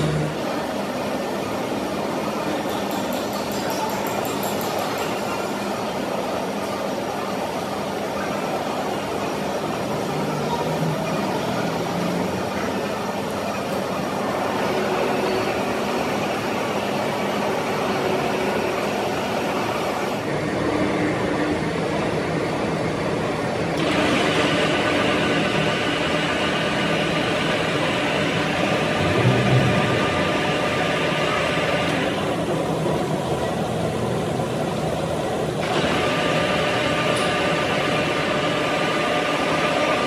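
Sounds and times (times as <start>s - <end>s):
machine-shop machinery running: 0.0s - 40.0s
low rumble: 29.0s - 31.5s.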